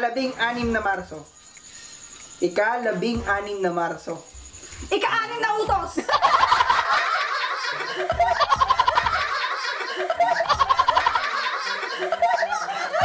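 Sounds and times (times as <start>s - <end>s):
people laughing: 6.0s - 13.0s.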